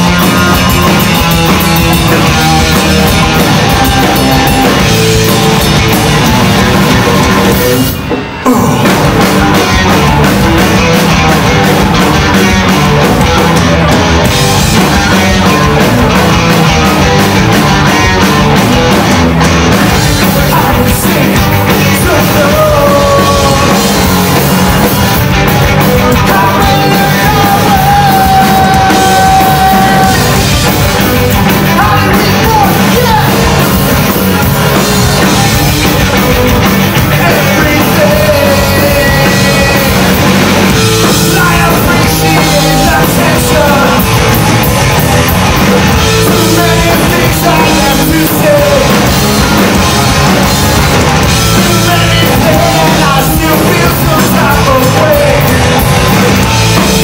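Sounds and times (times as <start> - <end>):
rock band playing live: 0.0 - 57.0
person singing: 8.4 - 9.9, 20.0 - 24.2, 26.0 - 30.5, 31.7 - 33.7, 37.0 - 40.2, 41.1 - 44.4, 46.1 - 50.0, 51.4 - 55.9.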